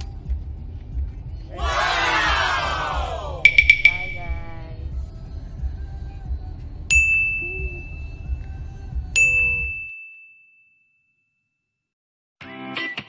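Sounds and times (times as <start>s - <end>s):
low rumble inside a car: 0.0s - 3.5s, 4.5s - 9.8s
bright ding chimes: 3.5s - 4.6s, 6.9s - 8.2s, 9.2s - 10.6s.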